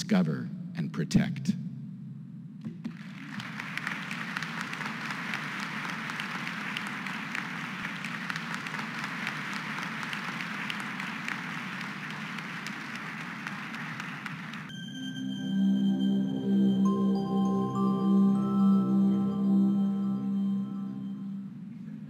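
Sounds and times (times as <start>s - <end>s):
audience applauding: 2.8s - 14.8s.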